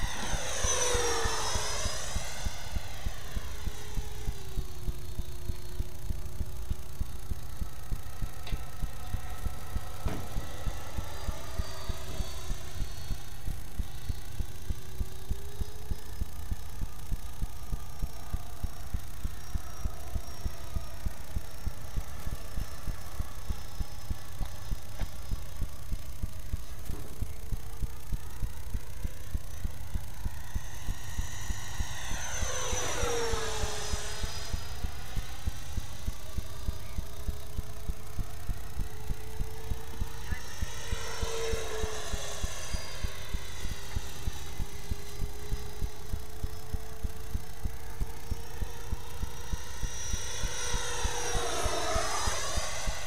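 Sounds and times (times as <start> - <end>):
faint jet fan whine: 0.0 - 53.0
low throb: 0.0 - 53.0
low steady thumping: 2.6 - 11.7, 12.4 - 31.2.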